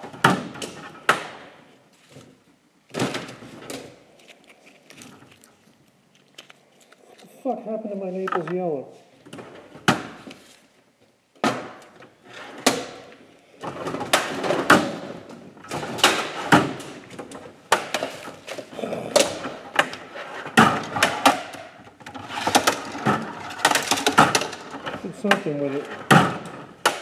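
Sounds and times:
objects knocking and clattering: 0:11.4 - 0:27.0.

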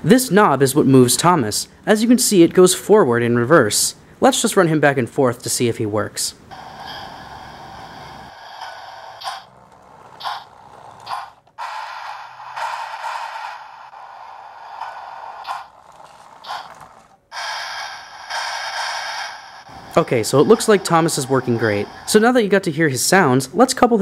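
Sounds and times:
loud steam puffs: 0:06.5 - 0:22.2
toy train wheels and motor: 0:06.5 - 0:22.2
toy train steam sound effects: 0:06.5 - 0:22.4.

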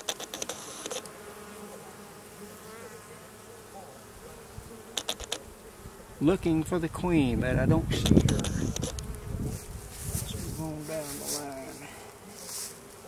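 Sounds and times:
sharp clicks: 0:00.0 - 0:01.2, 0:05.0 - 0:05.4, 0:08.0 - 0:09.2
bees buzzing: 0:00.0 - 0:13.0.

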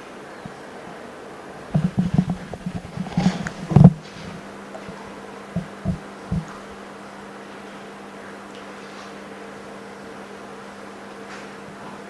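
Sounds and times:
machine humming: 0:00.0 - 0:12.0
low thumps and knocks: 0:01.7 - 0:06.6.

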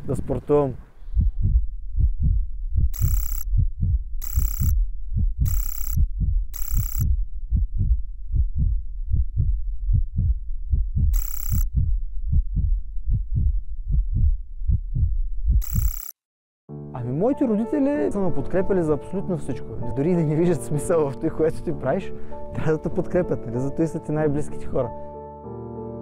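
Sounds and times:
heartbeat thumps: 0:01.0 - 0:16.0.

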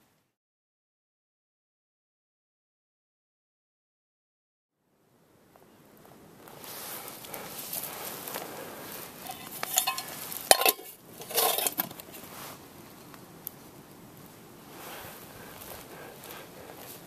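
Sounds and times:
metal mugs and cookware clinking: 0:09.2 - 0:12.0.

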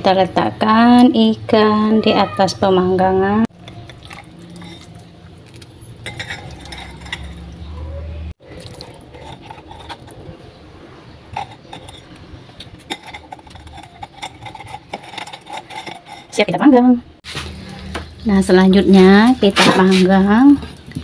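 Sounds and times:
metal grilling rack clinking: 0:03.6 - 0:16.6.

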